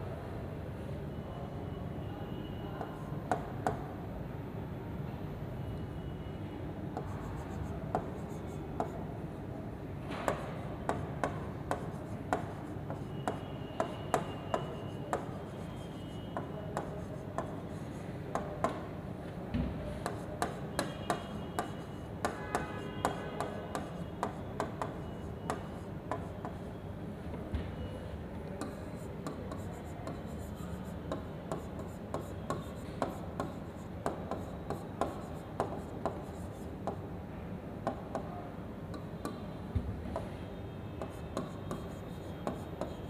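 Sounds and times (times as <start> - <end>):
steady background hum: 0.0 - 43.0
stylus tapping on glass screen: 41.0 - 43.0.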